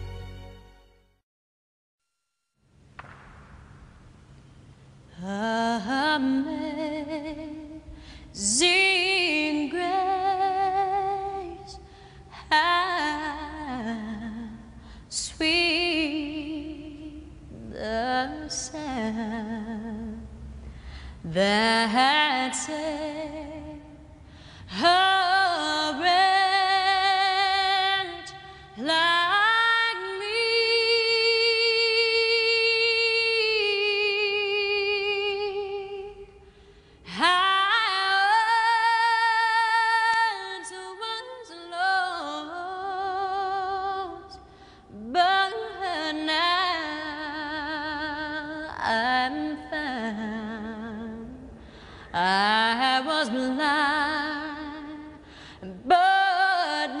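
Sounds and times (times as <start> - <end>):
woman singing with vibrato: 5.1 - 20.5, 21.2 - 57.0.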